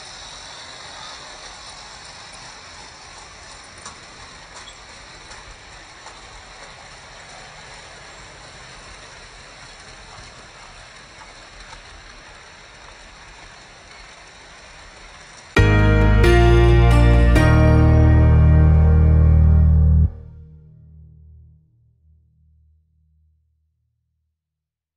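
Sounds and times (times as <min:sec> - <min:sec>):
model trains rattling on track: 0:00.0 - 0:15.5
music: 0:15.6 - 0:21.5.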